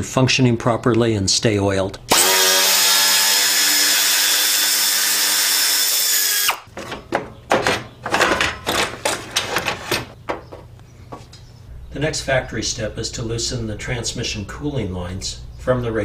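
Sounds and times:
plastic knocks and rattles: 6.7 - 11.3.

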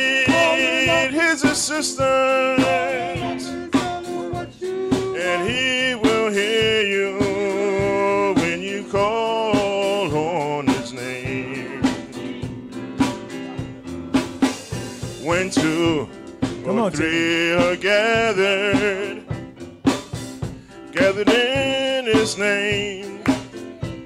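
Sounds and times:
male vocal group singing: 0.0 - 12.5, 15.2 - 16.1, 16.7 - 19.3, 21.0 - 24.0
drum kit beat: 0.0 - 24.0.

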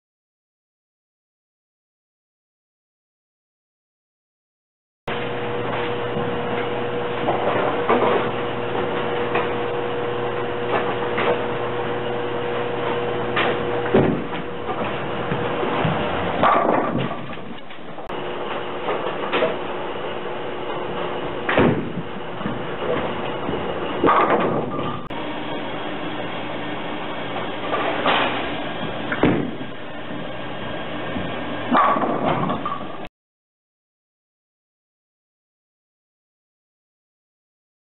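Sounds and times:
steady hum: 5.1 - 33.1
bowling balls and pins clattering: 5.6 - 11.8, 12.6 - 19.8, 20.6 - 25.2, 27.3 - 30.4, 31.0 - 33.1
bowling ball crashing into pins: 13.4 - 17.6, 21.4 - 25.1, 29.1 - 29.7, 31.7 - 32.9
deep thump: 13.9 - 14.5, 29.2 - 29.6.

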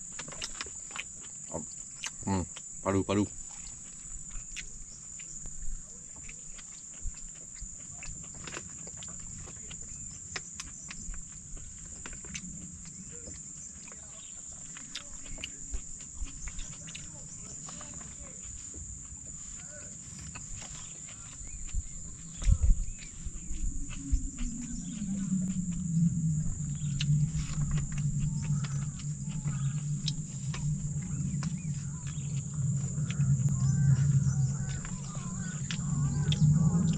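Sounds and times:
insects chorus: 0.0 - 36.9
low steady hum: 0.0 - 36.9
faint bird chirps: 9.4 - 18.4, 19.4 - 36.9.

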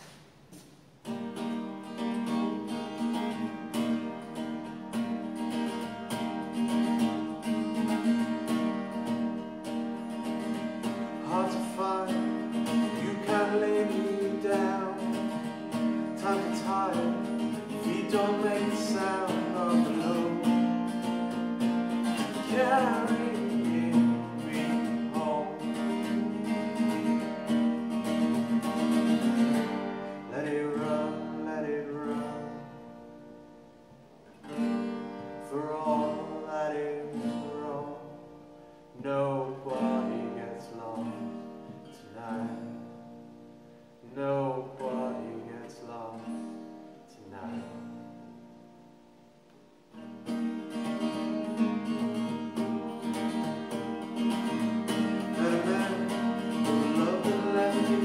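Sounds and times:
acoustic guitar strumming: 0.0 - 58.0.

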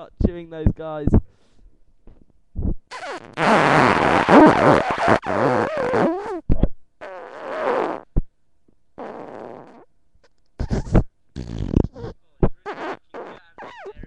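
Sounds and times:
person making fart noises: 2.6 - 8.2, 9.0 - 9.9, 10.6 - 14.0.

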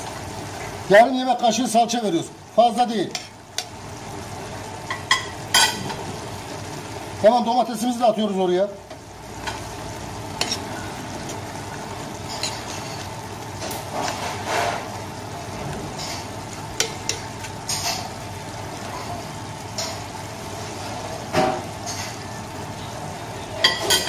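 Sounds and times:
vegetables sizzling in oil: 0.0 - 24.0
metal spoon scraping a pot: 10.4 - 10.8.

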